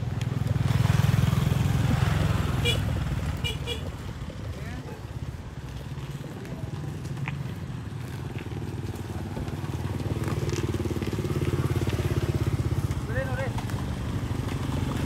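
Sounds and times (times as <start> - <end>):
motorbike engine running: 0.0 - 15.0.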